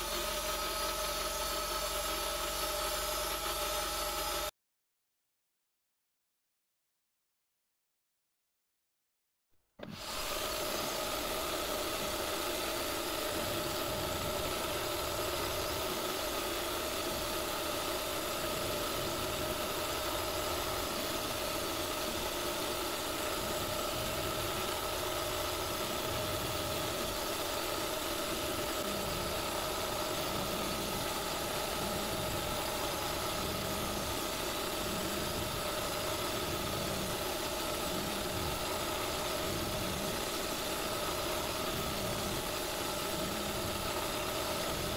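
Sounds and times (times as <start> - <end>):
milling machine whine: 0.0 - 4.5, 9.8 - 44.9
metal cutting noise: 9.8 - 44.9.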